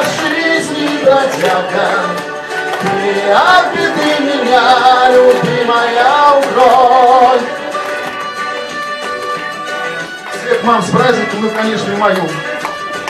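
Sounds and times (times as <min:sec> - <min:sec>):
man singing into microphone: 0:00.0 - 0:07.5
karaoke backing music: 0:00.0 - 0:13.0.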